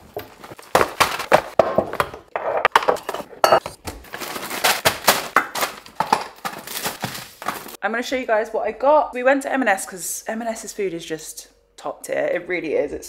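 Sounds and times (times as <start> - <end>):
jars and bottles clinking: 1.9 - 3.8
bags and packaging rustling: 3.8 - 7.8.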